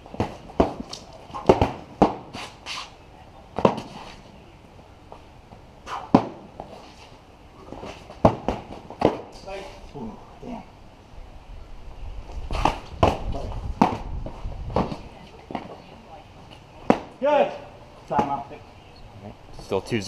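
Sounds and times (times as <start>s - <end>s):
padded swords hitting shields: 0.2s - 2.4s, 7.8s - 9.4s.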